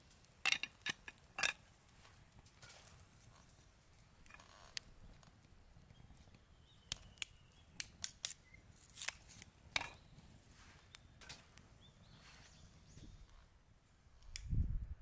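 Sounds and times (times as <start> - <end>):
wooden sticks clicking and snapping: 6.9 - 9.9.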